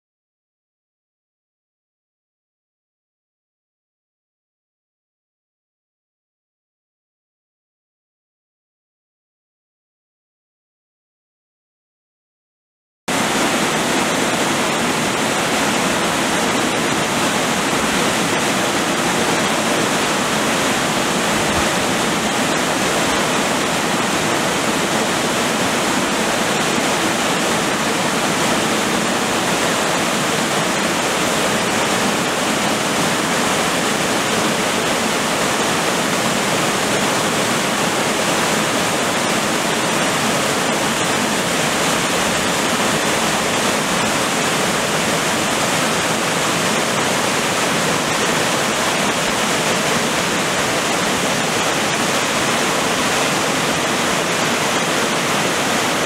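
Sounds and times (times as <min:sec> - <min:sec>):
waterfall rushing: 0:13.1 - 0:56.0.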